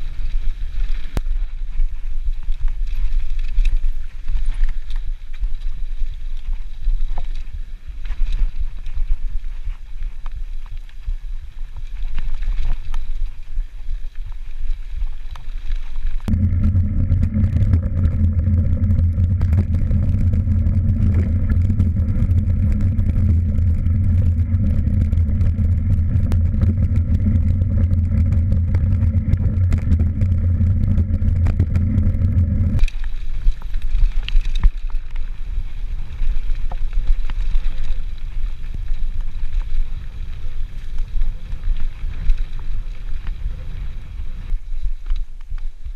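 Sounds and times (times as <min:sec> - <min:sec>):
bike rattles and ticks: 0:00.0 - 0:45.9
wind buffeting microphone: 0:16.2 - 0:32.8
heavy low rumble: 0:16.3 - 0:32.9.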